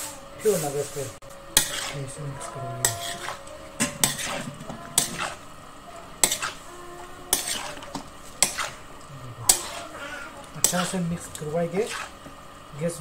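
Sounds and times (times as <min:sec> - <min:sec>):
food being stirred in metal pan: 0:00.4 - 0:12.7
metal pan clanking: 0:01.6 - 0:02.0, 0:02.8 - 0:05.4, 0:06.1 - 0:06.6, 0:07.3 - 0:08.8, 0:09.5 - 0:09.9, 0:10.5 - 0:11.0.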